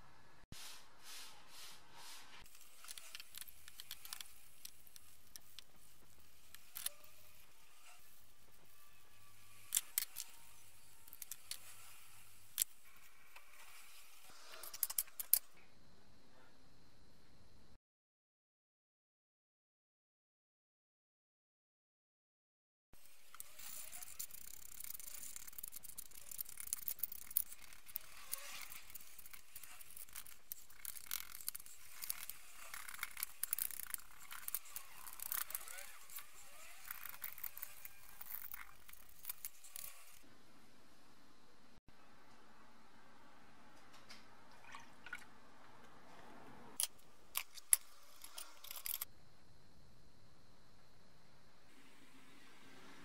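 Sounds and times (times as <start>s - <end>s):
brushes scrubbing metal: 23.0s - 40.2s
small metal parts clattering: 23.1s - 40.2s, 46.8s - 49.1s.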